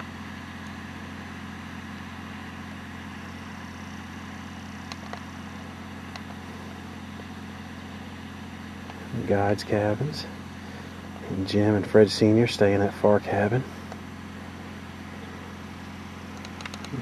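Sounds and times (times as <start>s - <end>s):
low mechanical hum: 0.0s - 17.0s
faint clicks: 16.3s - 17.0s.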